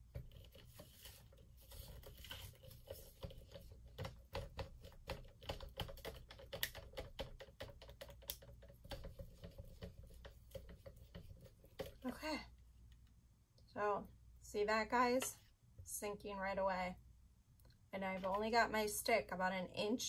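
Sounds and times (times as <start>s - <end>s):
stir stick clicking on plastic cup: 2.9s - 12.1s.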